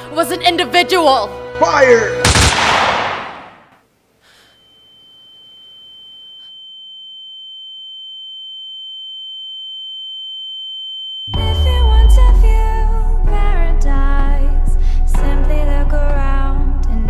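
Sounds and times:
music: 0.0 - 2.4, 11.3 - 17.0
gunshot reverb tail: 2.2 - 3.7
high-pitched ringing tone: 4.4 - 11.4.

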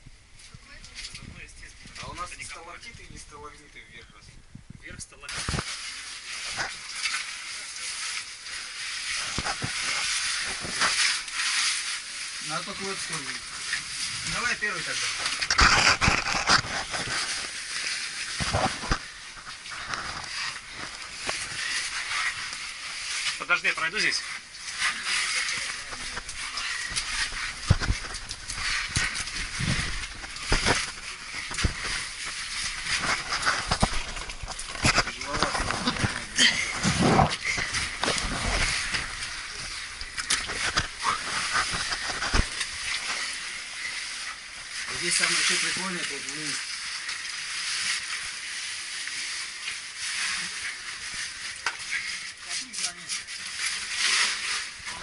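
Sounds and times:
clothing scraping against rock: 12.8 - 44.1.

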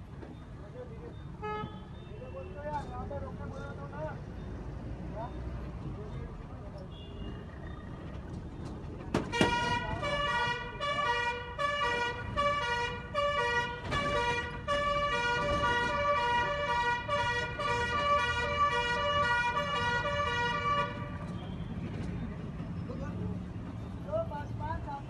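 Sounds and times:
low traffic rumble: 0.0 - 25.0
two-tone vehicle siren: 7.2 - 21.6.

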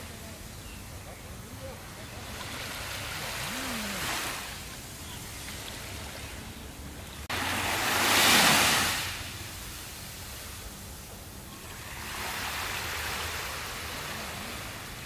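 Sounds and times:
waves lapping on sandy beach: 0.0 - 15.0.

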